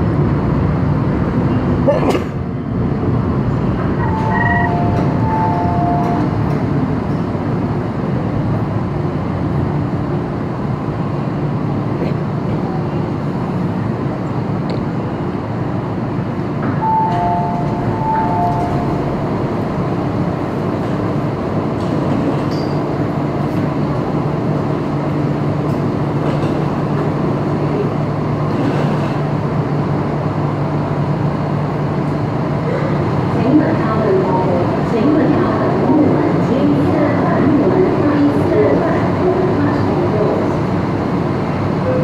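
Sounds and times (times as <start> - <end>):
metro train rumble and hum: 0.0 - 42.0
two-note tone: 4.0 - 6.3, 16.8 - 19.2.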